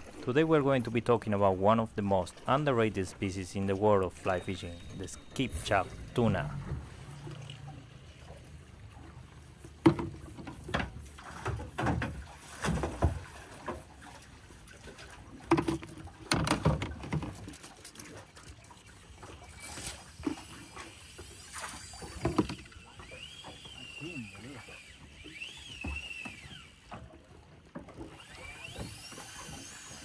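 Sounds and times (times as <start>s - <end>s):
water slapping against boat hull: 5.0s - 24.0s.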